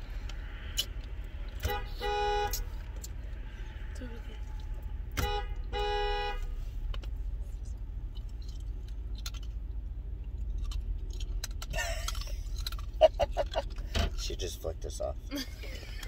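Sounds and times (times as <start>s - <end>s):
car engine idling: 0.0s - 16.0s
car horn honking: 1.6s - 2.8s, 5.1s - 6.7s.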